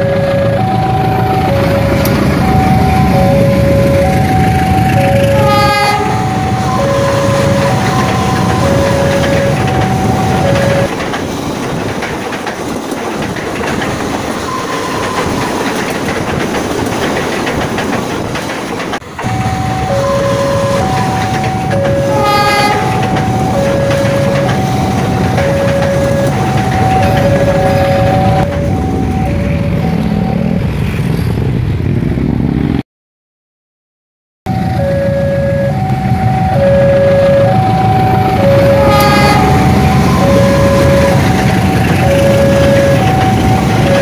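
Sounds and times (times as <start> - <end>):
level crossing alarm: 0.0 - 11.0, 14.4 - 16.4, 19.0 - 30.7, 34.5 - 44.0
diesel locomotive rumble: 0.0 - 32.8, 34.5 - 44.0
train wheels on rails: 0.0 - 32.8, 34.5 - 44.0
brief higher tone: 34.5 - 37.7.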